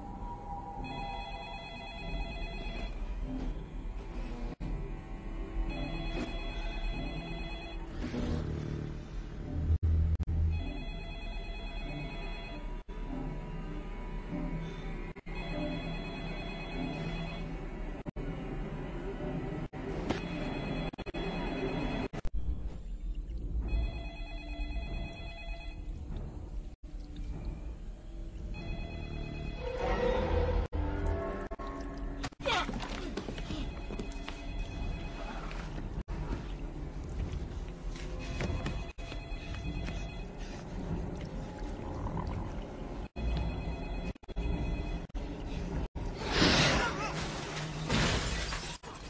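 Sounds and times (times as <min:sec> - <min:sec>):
telephone ringing: 0:00.8 - 0:03.0, 0:05.7 - 0:07.8, 0:10.6 - 0:12.8, 0:15.3 - 0:17.6, 0:20.2 - 0:22.3, 0:23.7 - 0:25.9, 0:43.2 - 0:45.2.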